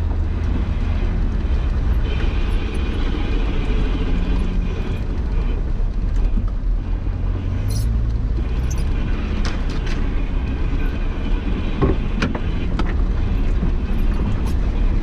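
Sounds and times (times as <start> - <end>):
off-road vehicle engine drone: 0.0 - 15.0
vehicle clicks and knocks: 7.7 - 10.9, 11.5 - 15.0.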